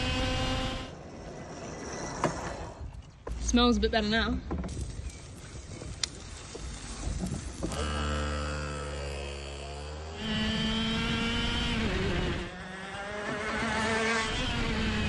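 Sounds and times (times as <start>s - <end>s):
go-kart engine revving: 0.0s - 2.1s, 6.8s - 15.0s.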